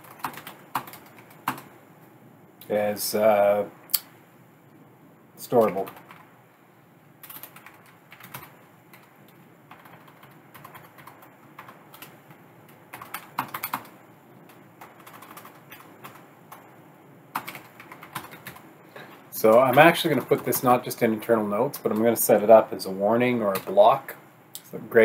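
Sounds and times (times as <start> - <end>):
typing on computer keyboard: 0.0 - 1.7, 7.2 - 9.1, 9.7 - 16.6, 17.3 - 18.6.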